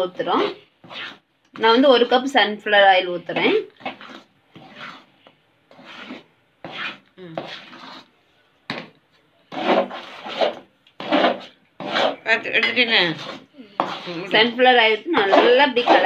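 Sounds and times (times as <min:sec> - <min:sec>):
steel spoon scraping pan: 0:05.7 - 0:08.1, 0:09.5 - 0:16.0.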